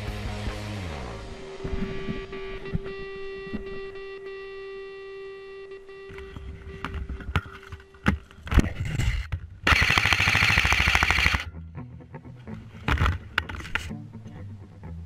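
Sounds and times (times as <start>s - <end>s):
background music: 0.0s - 6.2s, 11.3s - 15.0s
scattered clicks and knocks: 6.1s - 11.5s, 12.8s - 13.9s
airsoft rifle full-auto burst: 9.6s - 11.5s.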